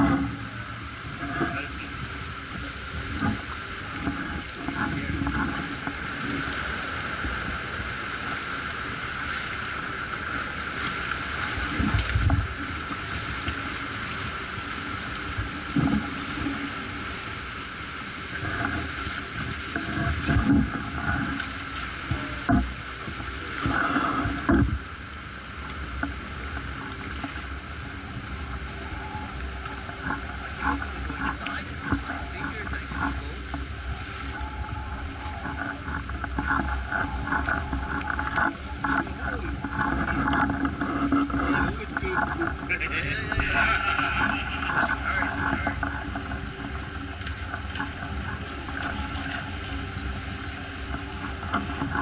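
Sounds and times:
steady rushing noise: 0.0s - 13.3s, 40.6s - 52.0s.

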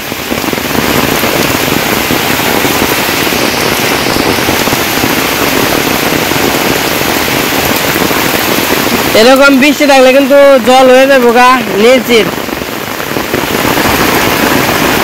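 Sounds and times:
heavy rain on water and leaves: 0.0s - 15.0s.

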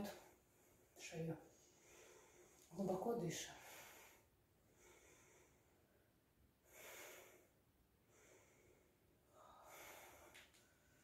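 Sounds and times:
faint deep breathing: 1.5s - 2.7s, 3.6s - 11.0s.

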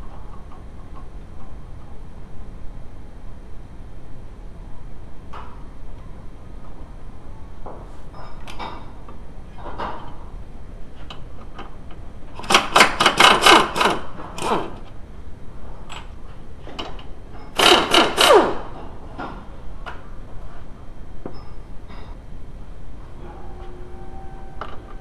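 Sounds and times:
power tool rattling: 12.4s - 14.7s, 17.5s - 18.7s.

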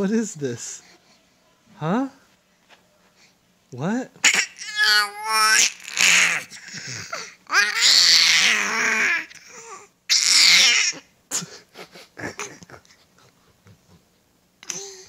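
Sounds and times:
baby screaming: 4.2s - 6.7s, 7.5s - 9.3s, 10.1s - 11.1s
baby cooing: 4.2s - 11.0s.

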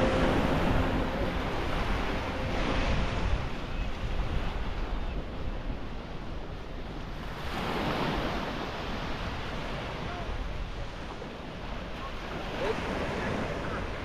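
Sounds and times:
wind buffeting microphone: 0.0s - 14.0s
surf washing onto sand: 7.2s - 14.0s.

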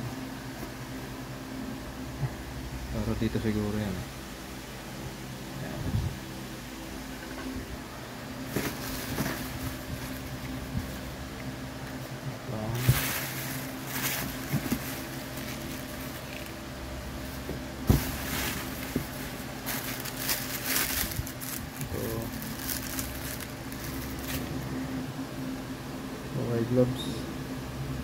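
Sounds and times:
steady low hum: 0.0s - 28.0s
plastic bags rustling and crinkling: 8.4s - 11.1s, 12.6s - 16.6s, 17.2s - 24.6s
knocks against cardboard box: 17.4s - 19.2s.

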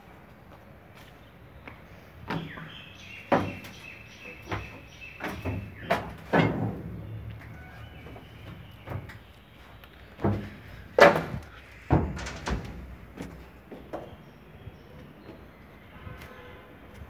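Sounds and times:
knocks and thumps: 3.3s - 3.7s, 4.4s - 9.3s, 10.2s - 14.2s.

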